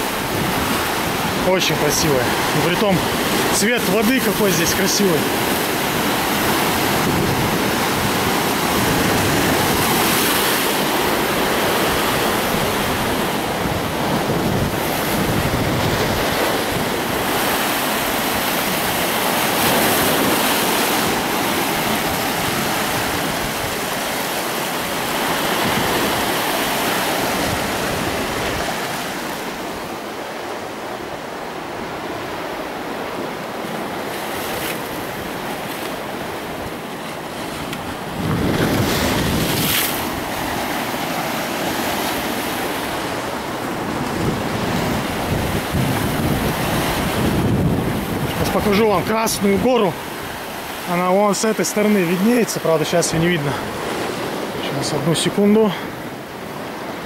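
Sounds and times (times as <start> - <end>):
surf breaking over rocks: 0.0 - 57.0.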